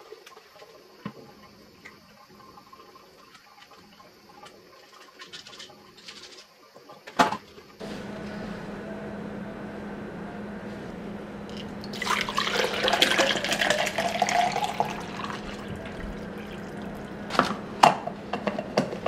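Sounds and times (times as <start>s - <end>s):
water pouring into plastic bottle: 11.9s - 17.1s.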